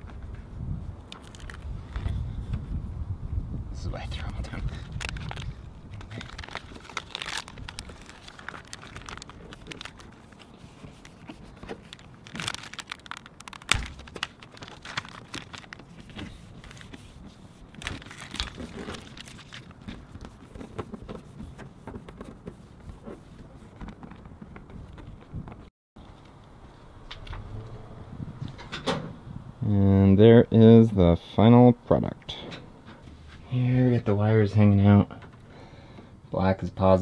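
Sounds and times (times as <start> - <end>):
tape crinkling and crackling: 1.1 - 2.2, 4.3 - 25.7
tape tearing: 1.1 - 2.2, 4.8 - 23.2.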